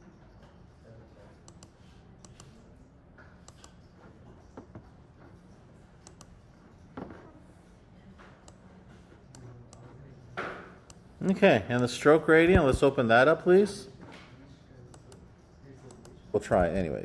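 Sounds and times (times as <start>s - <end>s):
computer mouse clicks: 1.3s - 6.4s, 8.2s - 11.1s, 14.8s - 16.8s.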